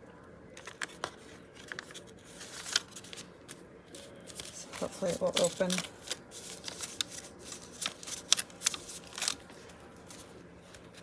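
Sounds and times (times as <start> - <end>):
paper rustling and tapping: 0.6 - 3.2, 4.3 - 11.0.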